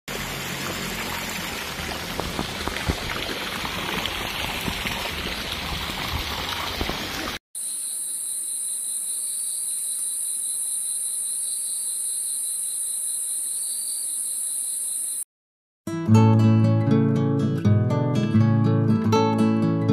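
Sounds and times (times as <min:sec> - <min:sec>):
water rushing into pool: 0:00.1 - 0:07.4
crickets chirring: 0:07.6 - 0:15.2.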